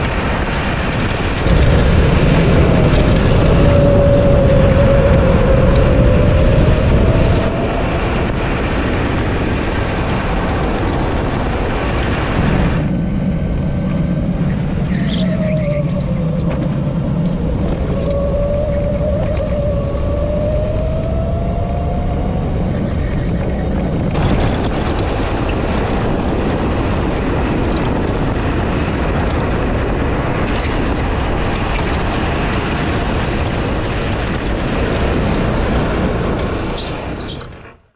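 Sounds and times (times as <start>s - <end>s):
wind and road noise: 0.0s - 37.9s.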